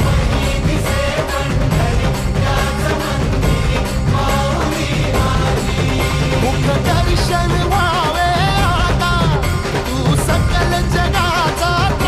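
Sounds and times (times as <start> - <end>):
steady drum beat: 0.0 - 12.0
person singing: 4.3 - 12.0.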